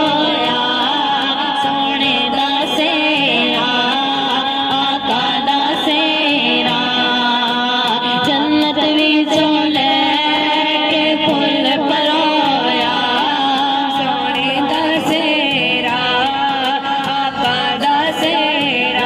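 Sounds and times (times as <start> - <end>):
woman singing devotional song: 0.0 - 19.0.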